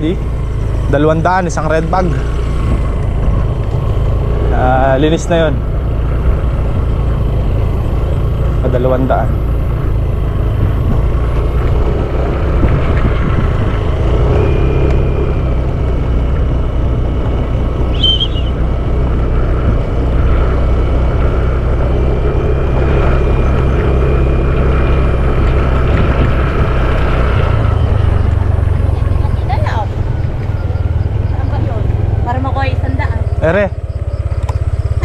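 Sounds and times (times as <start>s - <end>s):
engine rumbling: 0.0s - 35.0s
high chirp: 17.9s - 18.6s.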